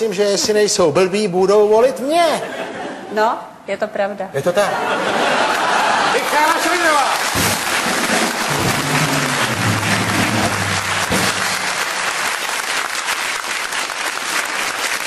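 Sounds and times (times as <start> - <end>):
audience applauding: 5.3 - 15.0.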